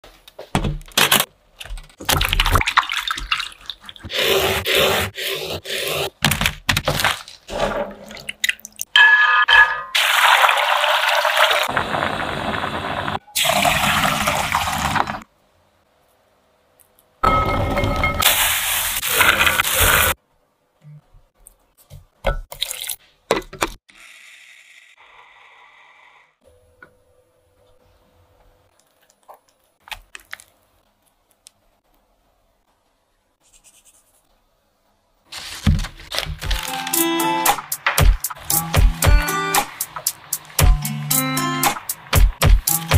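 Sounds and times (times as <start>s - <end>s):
water pouring into a pot: 10.0s - 15.2s.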